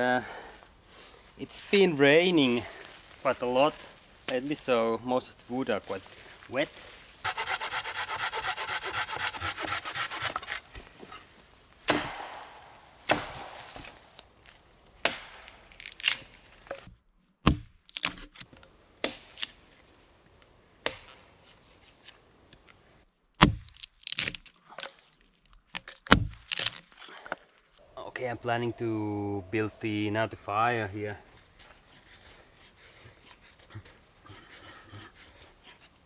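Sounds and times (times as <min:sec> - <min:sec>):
hand saw rasping through branch: 0:07.2 - 0:10.7.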